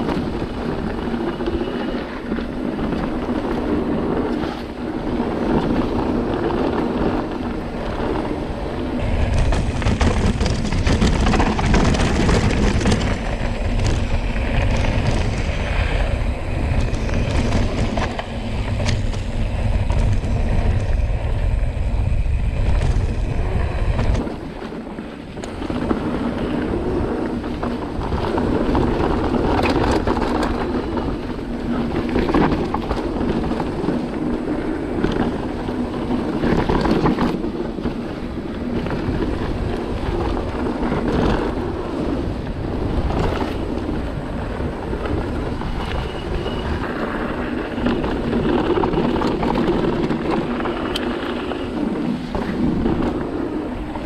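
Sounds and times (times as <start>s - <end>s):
bike tyres on dirt trail: 0.0s - 54.0s
wind buffeting microphone: 0.0s - 54.0s
bike knocks and rattles: 2.6s - 54.0s.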